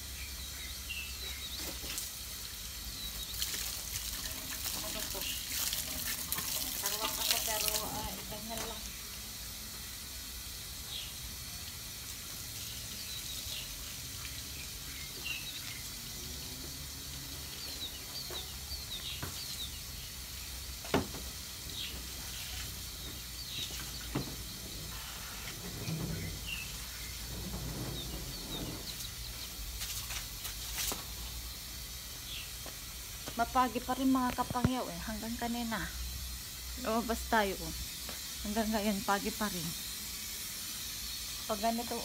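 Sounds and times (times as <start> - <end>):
small birds chirping: 0.0 - 4.0, 12.6 - 16.2, 17.2 - 20.8, 21.7 - 31.6, 32.2 - 32.7
steady hiss: 0.0 - 42.0.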